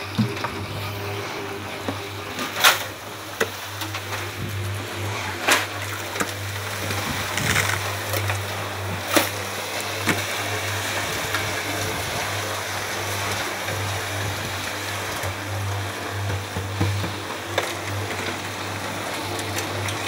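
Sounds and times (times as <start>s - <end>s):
concrete mixer humming: 0.0s - 20.0s
sharp knocks in mixer: 16.1s - 18.0s.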